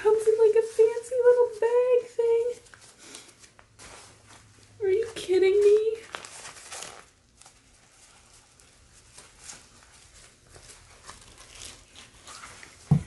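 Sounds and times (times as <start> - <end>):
packaging rustling: 5.2 - 13.0.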